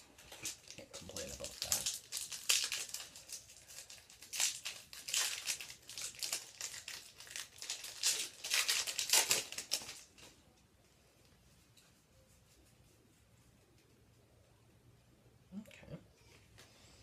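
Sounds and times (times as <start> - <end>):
plastic wrapper crinkling and tearing: 0.0 - 10.4.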